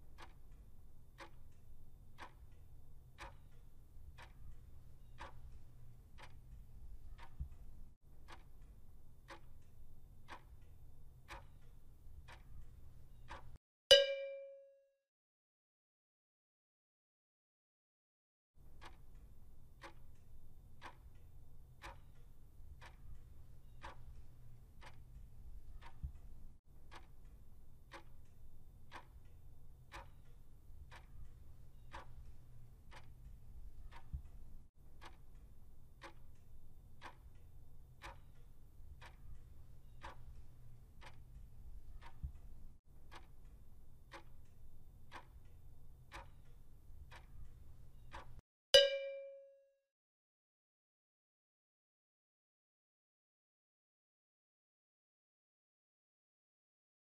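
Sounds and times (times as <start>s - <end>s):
clock ticking: 0.0s - 14.7s, 18.6s - 49.5s.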